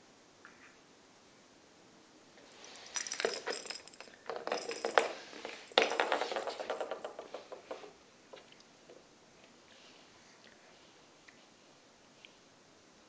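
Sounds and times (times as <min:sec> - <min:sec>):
rattle ball rolling on wooden floor: 0:02.4 - 0:08.5.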